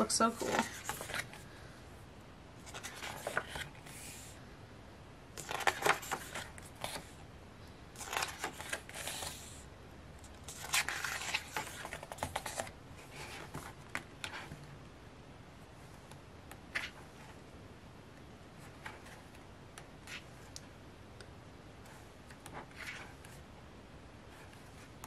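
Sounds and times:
book pages turning: 0.3 - 1.4, 2.6 - 4.4, 5.4 - 7.2, 8.0 - 9.6, 10.3 - 14.7, 16.0 - 17.4, 18.6 - 19.4, 21.8 - 23.4.

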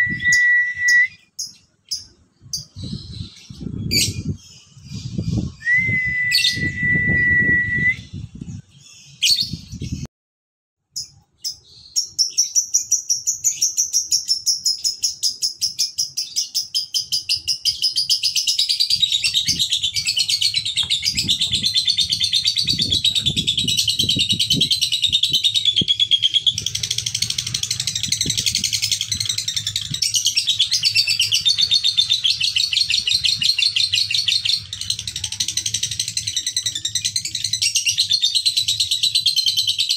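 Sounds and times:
whistle-like tone: 0.0 - 1.3, 5.4 - 8.2.

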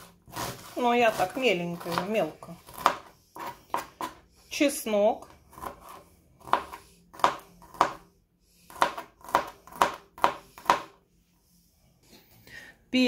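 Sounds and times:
knife chopping on cutting board: 0.3 - 4.2, 5.5 - 8.1, 8.7 - 11.0.

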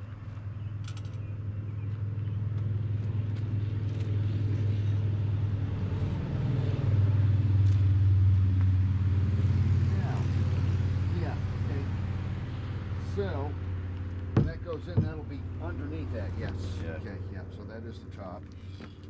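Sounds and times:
distant engine humming: 0.0 - 19.0.

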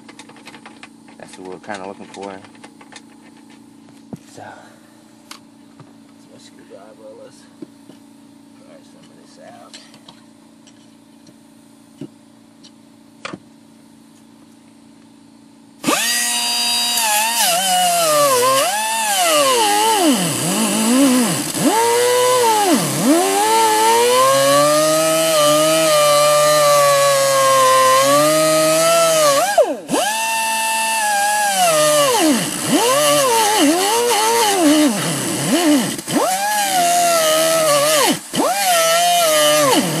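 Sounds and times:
electric grinder cutting metal: 15.8 - 40.0.

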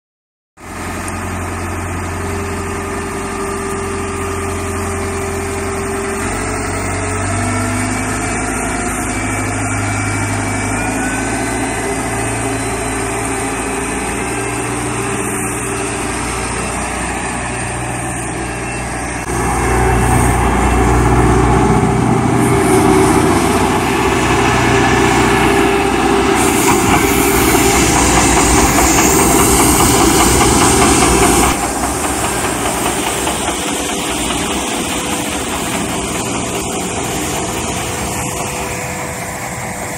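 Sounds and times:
street sweeper engine running: 0.6 - 39.9
rushing hiss: 22.3 - 39.9.

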